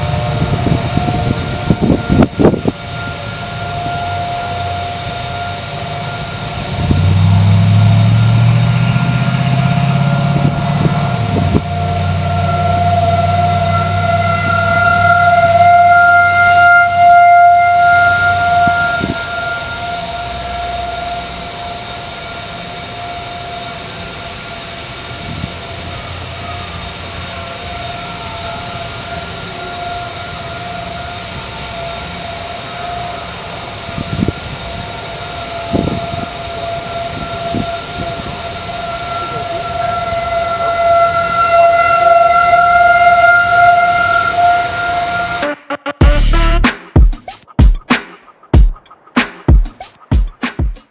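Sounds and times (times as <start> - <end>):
distant warning siren: 0.0 - 46.9
low rumble: 46.0 - 46.7.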